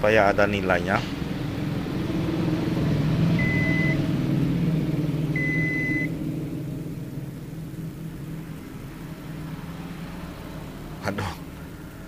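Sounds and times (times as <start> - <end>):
multimeter beeping: 5.4 - 6.1.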